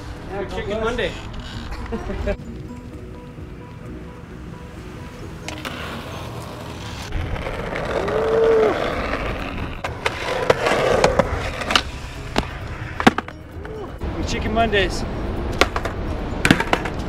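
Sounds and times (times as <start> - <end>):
skateboard wheels rolling on asphalt: 0.0 - 17.0
skateboard clacks: 15.6 - 17.0.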